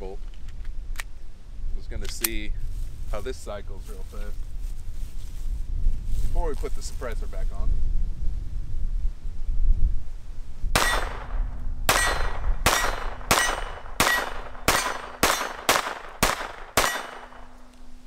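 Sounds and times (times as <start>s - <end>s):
wind rumbling on microphone: 0.0s - 18.0s
pistol gunshots: 10.8s - 17.7s.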